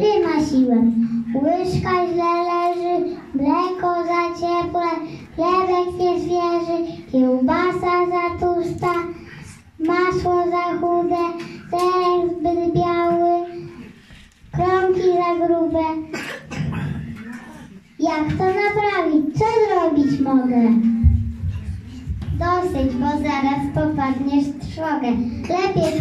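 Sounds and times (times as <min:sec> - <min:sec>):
child singing: 0:01.4 - 0:09.1.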